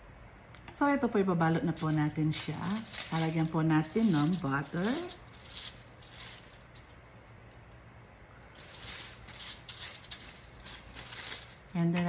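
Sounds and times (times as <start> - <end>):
brush rustling over foil: 1.7 - 7.0, 8.4 - 11.8.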